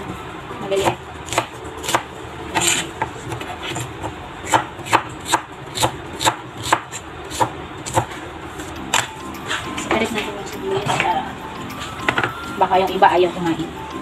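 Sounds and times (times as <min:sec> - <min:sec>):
knife chopping on cutting board: 0:00.8 - 0:08.1.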